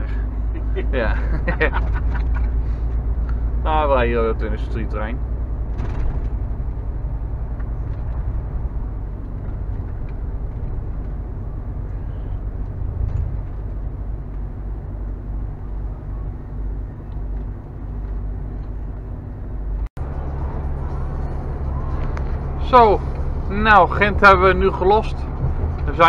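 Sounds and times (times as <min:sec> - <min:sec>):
diesel engine drone: 0:00.0 - 0:26.0
road noise: 0:00.0 - 0:26.0.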